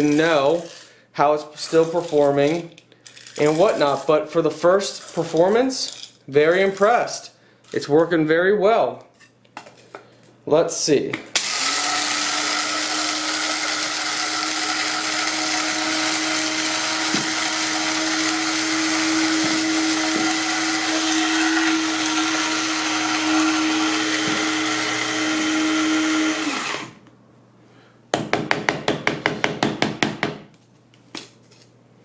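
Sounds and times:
coffee grinder whining: 11.4s - 27.0s
tapping on grinder: 14.4s - 25.5s.

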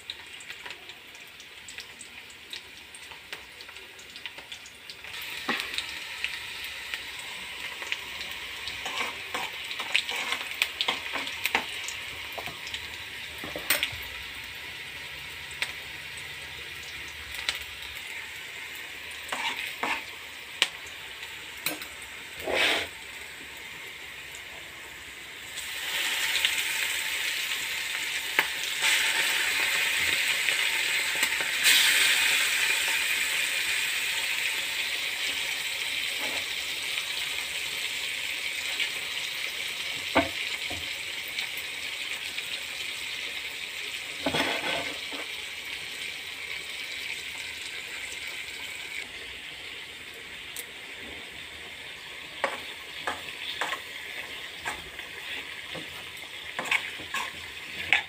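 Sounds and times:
food sizzling in a pan: 0.0s - 58.0s.

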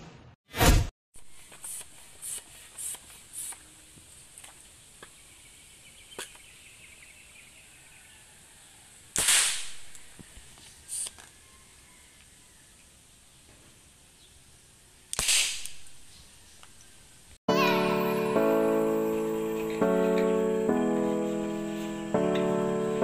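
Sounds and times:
marble gun firing with crack and hiss: 9.1s - 10.2s, 10.9s - 11.2s, 15.1s - 16.0s.

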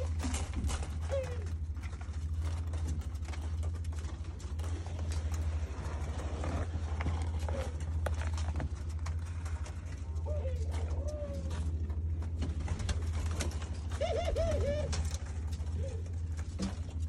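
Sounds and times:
dove cooing: 0.0s - 2.4s, 4.6s - 8.4s, 9.2s - 16.6s
doves pecking seed: 0.0s - 17.0s
steady low hum: 0.0s - 17.0s.

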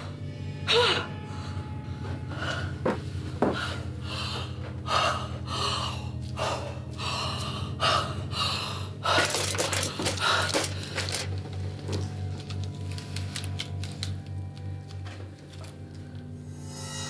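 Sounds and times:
steady low drone: 0.0s - 17.0s
rapid small clicks and clatter: 9.2s - 11.4s.

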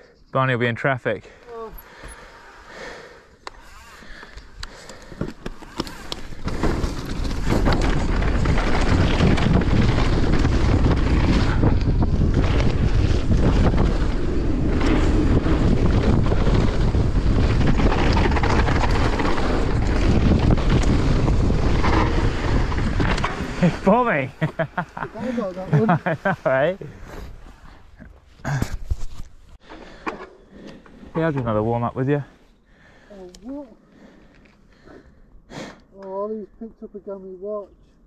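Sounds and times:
wind buffeting microphone: 5.9s - 27.4s.

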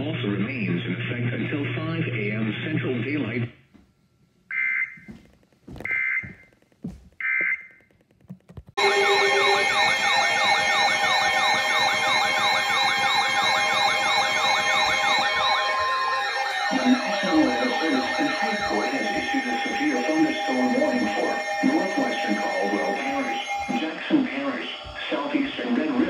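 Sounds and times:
steady alarm tones: 5.8s - 6.6s, 8.8s - 26.0s
sirens wailing: 8.8s - 26.0s
warbling data tones: 8.8s - 26.0s.

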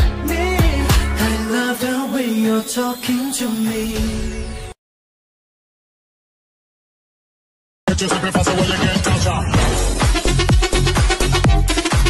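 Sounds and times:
loud music: 0.0s - 4.8s, 7.9s - 12.0s.

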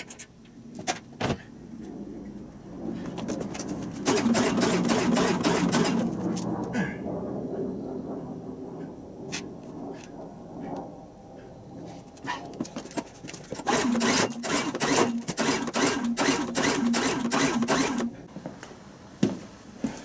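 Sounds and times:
generator engine cranking: 3.6s - 6.2s, 12.9s - 18.2s.

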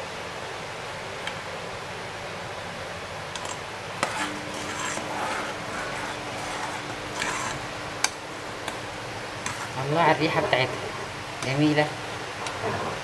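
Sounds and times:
steady hiss: 0.0s - 13.0s
metal spoon scraping a pot: 3.4s - 7.7s, 9.4s - 9.8s.

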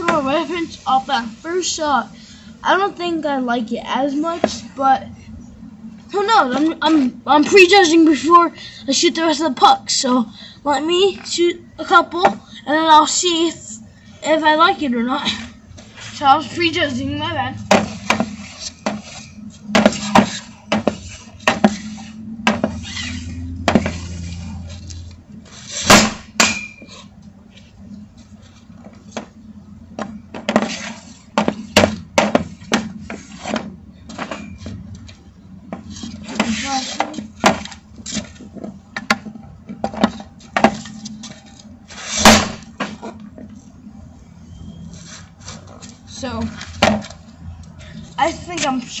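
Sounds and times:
hockey stick clacking pucks: 17.7s - 21.9s, 30.0s - 34.8s, 35.7s - 43.2s
loud stick cracks: 25.8s - 26.8s.

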